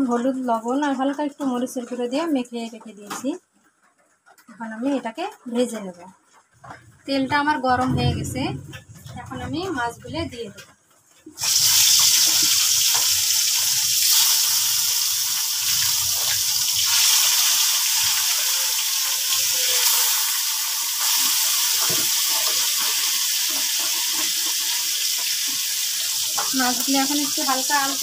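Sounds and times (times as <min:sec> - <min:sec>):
fish sizzling in hot oil: 0:11.2 - 0:28.0.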